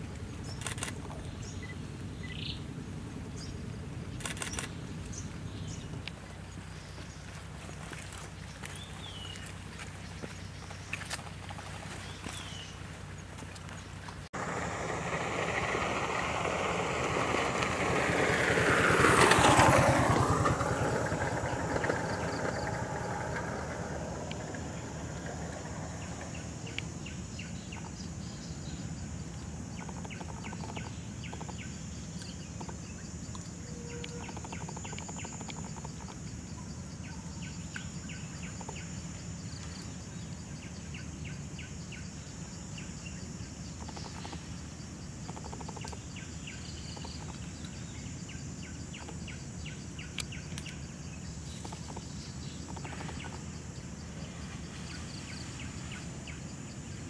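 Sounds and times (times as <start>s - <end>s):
high insect drone: 14.4s - 57.0s.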